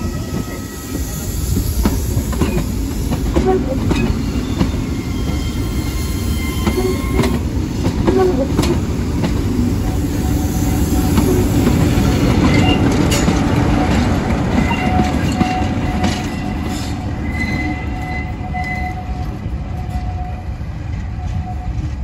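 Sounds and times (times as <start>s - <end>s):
diesel locomotive passing: 0.0s - 22.0s
train wheels rumbling on track: 0.0s - 22.0s
wheel squeal: 3.4s - 7.4s, 12.4s - 12.9s, 14.6s - 20.5s.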